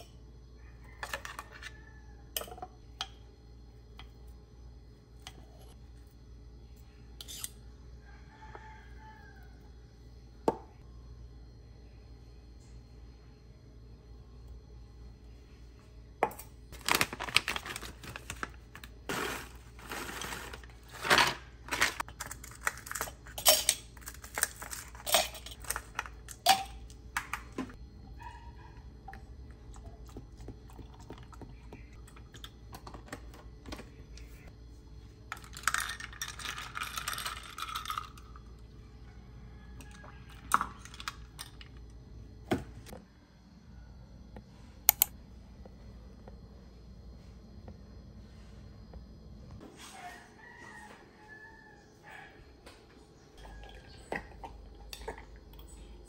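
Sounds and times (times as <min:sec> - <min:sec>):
metal spoon clinking in glass: 0:22.9 - 0:25.8.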